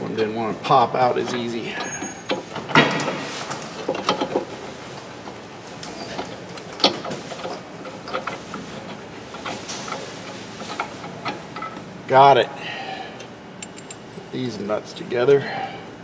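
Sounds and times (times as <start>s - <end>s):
metal bolt clicks and taps: 13.6s - 14.1s.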